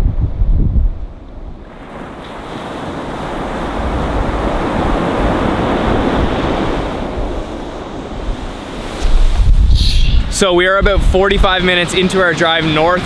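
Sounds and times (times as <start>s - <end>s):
wind rumbling on microphone: 0.0s - 11.8s
surf breaking on pebble beach: 1.6s - 10.8s.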